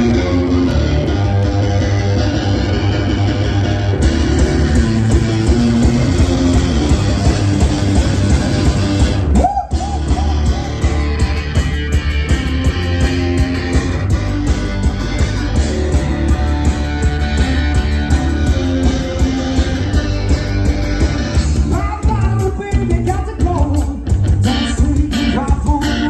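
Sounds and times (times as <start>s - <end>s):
rock band playing: 0.0s - 26.0s
person singing: 21.5s - 26.0s.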